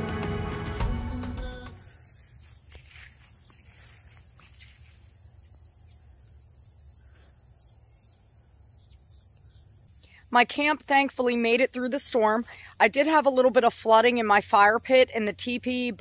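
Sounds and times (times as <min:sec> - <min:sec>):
background music: 0:00.0 - 0:01.9
crickets chirping: 0:01.1 - 0:16.0.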